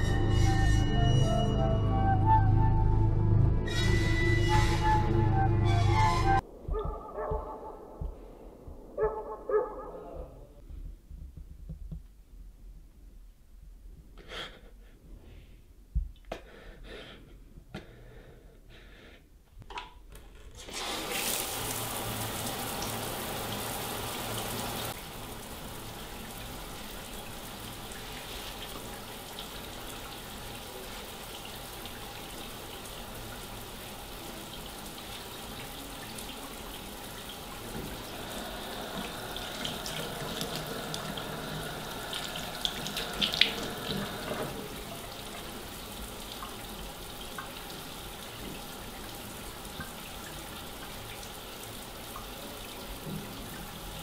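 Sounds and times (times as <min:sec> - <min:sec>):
tap water running into sink: 0:20.6 - 0:25.1, 0:26.0 - 0:54.0.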